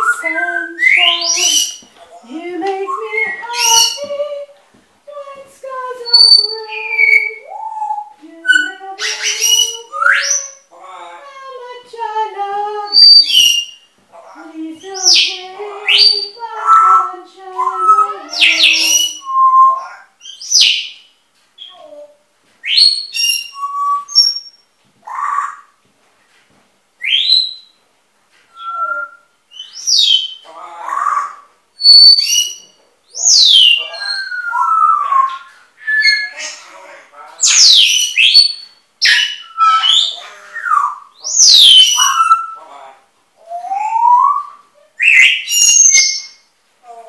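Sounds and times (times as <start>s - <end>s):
birds whistling and squawking: 0.0s - 1.9s, 2.8s - 4.1s, 6.1s - 10.7s, 12.9s - 13.9s, 15.0s - 25.7s, 27.0s - 27.8s, 28.5s - 36.8s, 37.4s - 42.7s, 43.4s - 46.5s.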